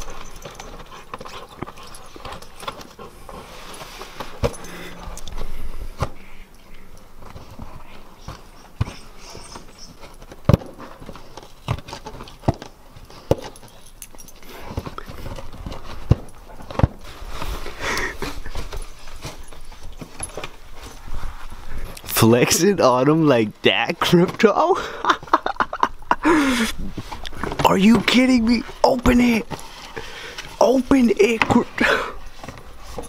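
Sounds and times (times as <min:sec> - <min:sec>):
dog clawing and biting cardboard: 0:00.0 - 0:06.3, 0:07.2 - 0:21.2.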